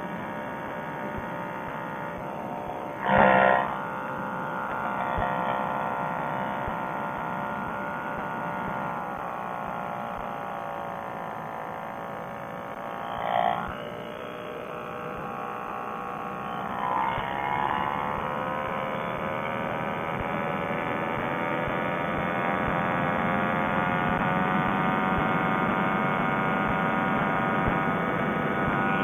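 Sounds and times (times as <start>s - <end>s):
paramotor engine and propeller: 0.0s - 29.0s.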